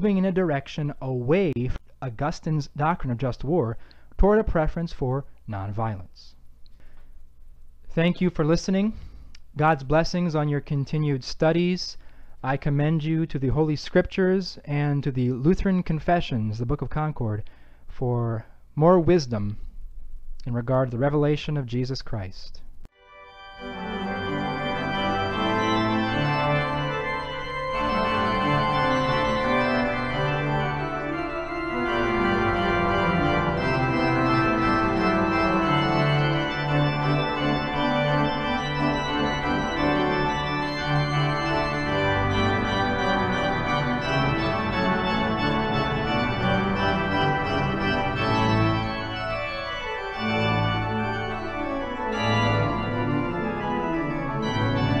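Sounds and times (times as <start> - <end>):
organ playing sustained chords: 23.0 - 55.0.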